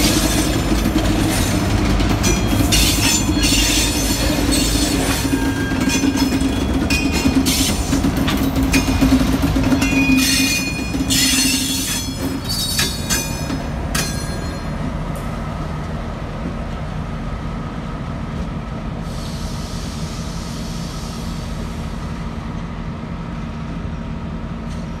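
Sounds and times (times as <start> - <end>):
train wheel squeal: 0.0 - 14.8
diesel locomotive engine drone: 0.0 - 25.0
rumble of train cars: 0.0 - 25.0.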